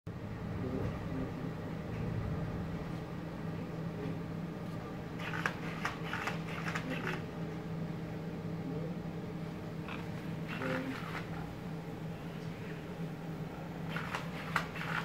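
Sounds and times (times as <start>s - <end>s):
steady low hum: 0.1s - 15.0s
servo-motor whirrs: 13.9s - 15.0s.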